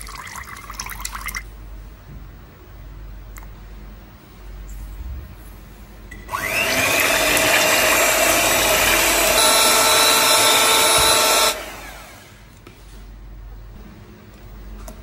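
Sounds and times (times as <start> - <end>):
electric hand mixer whining: 6.3 - 12.5.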